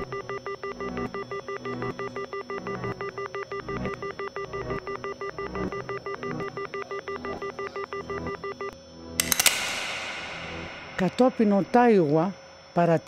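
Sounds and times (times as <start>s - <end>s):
pulsing electronic ringing: 0.0s - 8.8s.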